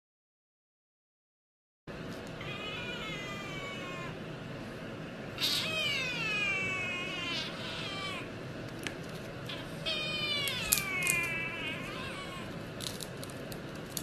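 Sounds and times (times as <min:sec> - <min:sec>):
cat meowing: 0:02.4 - 0:04.2, 0:05.4 - 0:08.3, 0:09.5 - 0:12.6.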